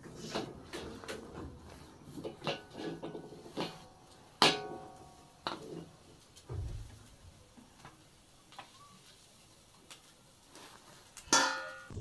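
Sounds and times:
metal cookware clinking: 0:02.1 - 0:06.0, 0:11.3 - 0:12.0
dull thump: 0:06.5 - 0:07.0.

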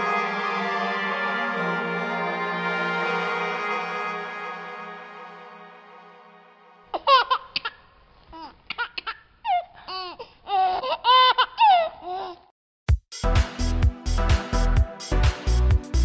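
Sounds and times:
music with heavy beat: 0:12.9 - 0:16.0.

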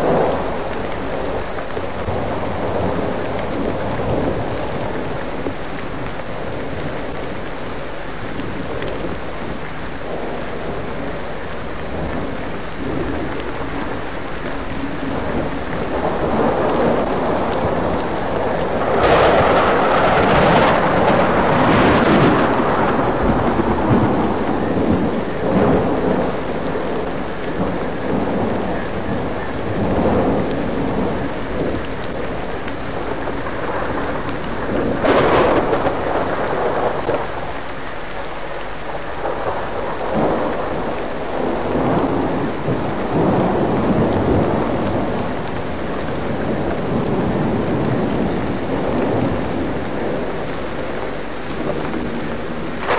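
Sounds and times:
thunder rumbling: 0:00.0 - 0:38.2, 0:38.9 - 0:52.9
rain falling: 0:00.0 - 0:52.9.

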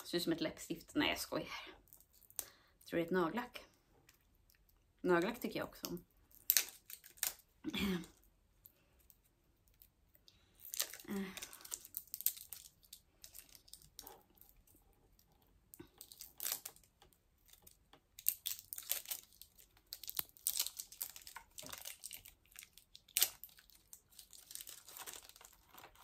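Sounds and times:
packaging crinkling and tearing: 0:06.3 - 0:07.5, 0:09.7 - 0:26.0.

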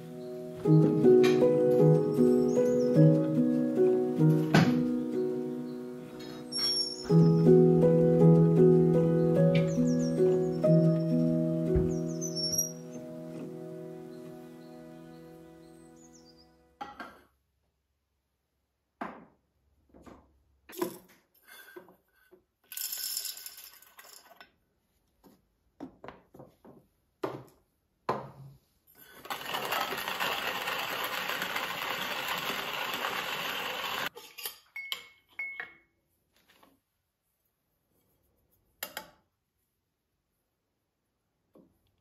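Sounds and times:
kitchen items clinking: 0:22.6 - 0:24.6, 0:29.0 - 0:35.8
hand coffee grinder grinding beans: 0:29.0 - 0:34.4.

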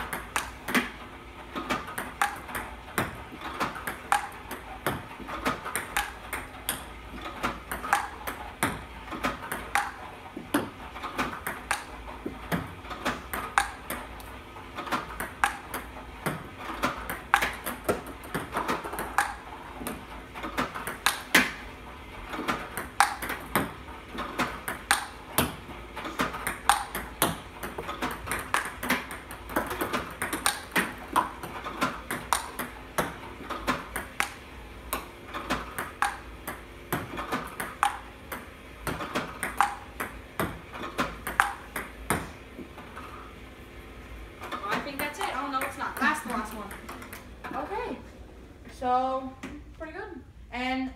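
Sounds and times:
table tennis balls clicking: 0:00.0 - 0:43.3, 0:44.4 - 0:47.7.

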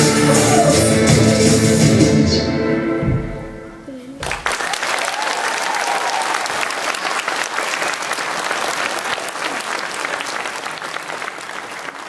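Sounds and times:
audience clapping: 0:04.2 - 0:12.0.

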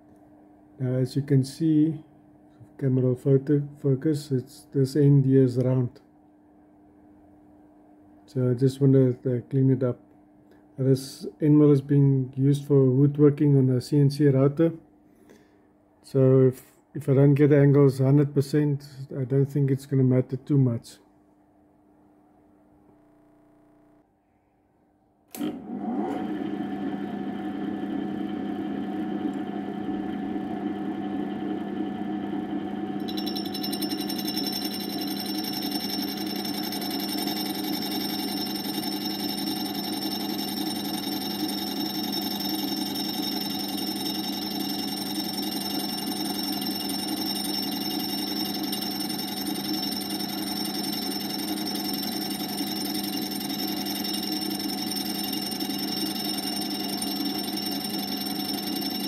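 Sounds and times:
grinding disc humming: 0:25.8 - 0:59.0
high-pitched grinding whine: 0:28.8 - 0:59.0.

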